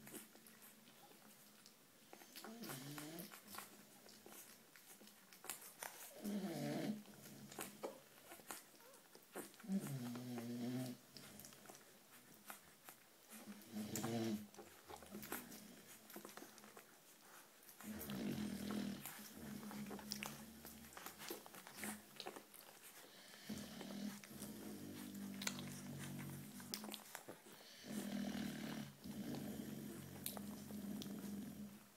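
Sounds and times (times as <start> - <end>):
puppy suckling wet smacking: 0.0 - 6.2, 10.9 - 23.2, 24.1 - 28.0
puppy grunting: 13.4 - 31.9.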